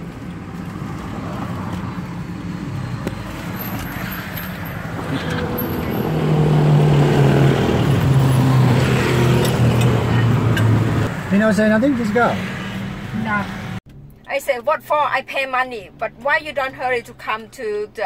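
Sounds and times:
vehicle engine droning: 0.0s - 14.3s
road traffic: 0.0s - 18.0s.

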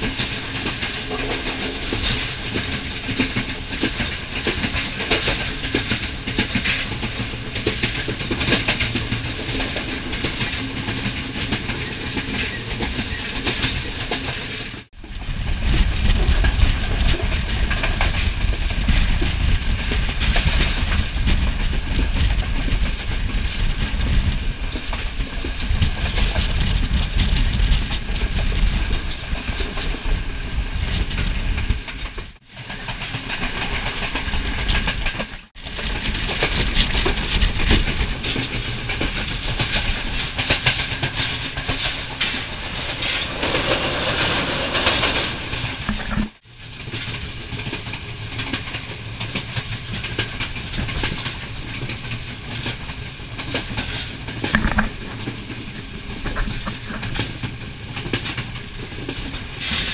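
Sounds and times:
train wheels clattering on rails: 0.0s - 59.9s.

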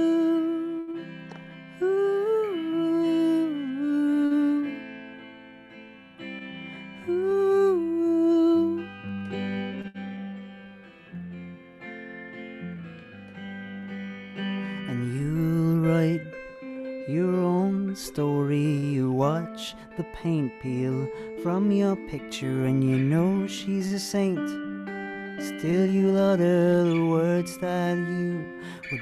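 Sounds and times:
man singing: 0.0s - 1.0s, 1.8s - 4.8s, 7.0s - 9.0s, 14.7s - 24.6s, 25.4s - 29.0s
guitar: 0.0s - 29.0s.

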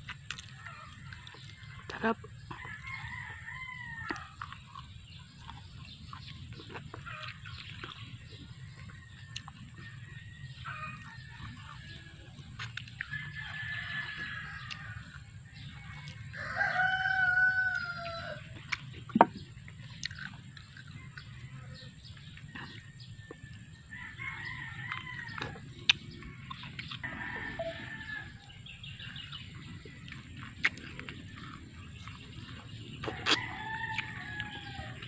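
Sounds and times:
rooster crowing: 2.5s - 4.6s, 13.0s - 18.6s, 21.1s - 25.6s, 27.0s - 28.7s, 33.1s - 35.0s.

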